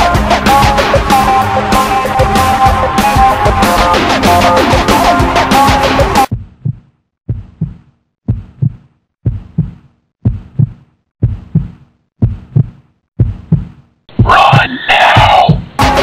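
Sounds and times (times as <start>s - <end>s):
rock music with guitar: 0.0s - 6.3s
heartbeat thumps: 6.3s - 16.0s.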